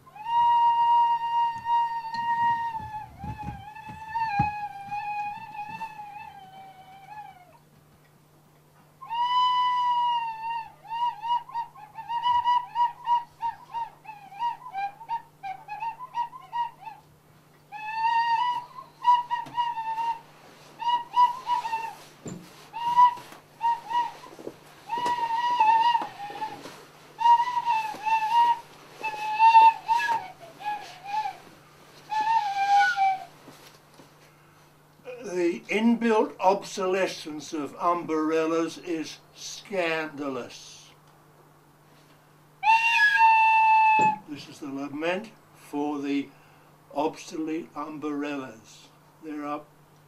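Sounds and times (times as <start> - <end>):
slow tune on wooden pipe: 0.0 - 36.6, 41.9 - 44.9.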